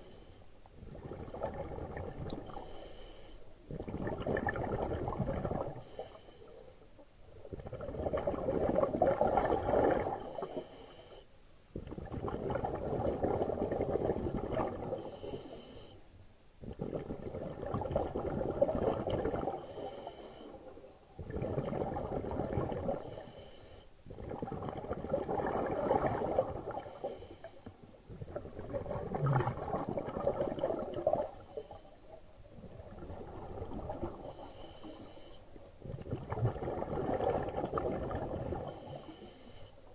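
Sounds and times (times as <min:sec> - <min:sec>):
bubbling gurgle: 0:00.8 - 0:02.6, 0:03.7 - 0:05.8, 0:07.4 - 0:10.3, 0:11.8 - 0:15.1, 0:16.6 - 0:19.7, 0:21.2 - 0:23.1, 0:24.1 - 0:27.0, 0:28.1 - 0:31.5, 0:32.4 - 0:34.3, 0:35.8 - 0:38.9
diver breathing through regulator: 0:02.5 - 0:03.5, 0:14.9 - 0:16.0, 0:19.5 - 0:20.7, 0:22.9 - 0:24.0, 0:26.7 - 0:27.8, 0:34.1 - 0:35.5, 0:38.6 - 0:39.8.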